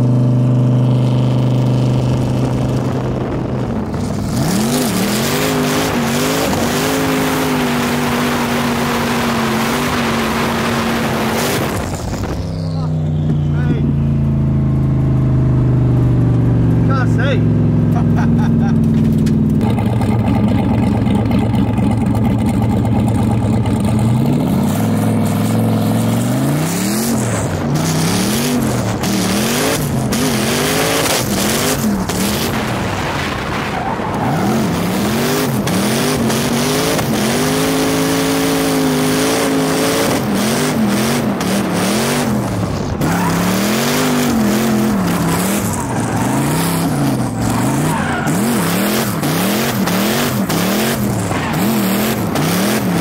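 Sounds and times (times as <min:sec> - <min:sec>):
car engine revving: 0:00.0 - 0:53.0
tyres screeching: 0:42.8 - 0:53.0.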